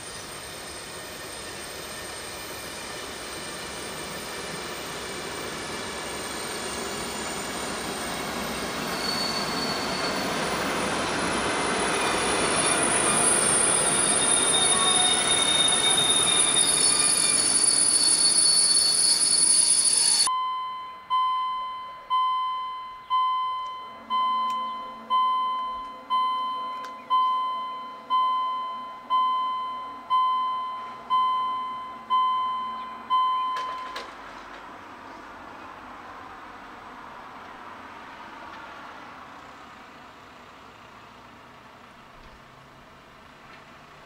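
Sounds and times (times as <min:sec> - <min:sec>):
train wheels squealing on rails: 0:00.0 - 0:20.3.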